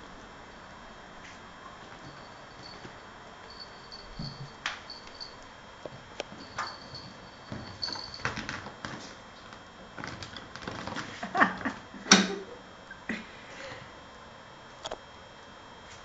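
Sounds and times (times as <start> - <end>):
kittens scuffling on wooden floor: 5.9 - 11.3.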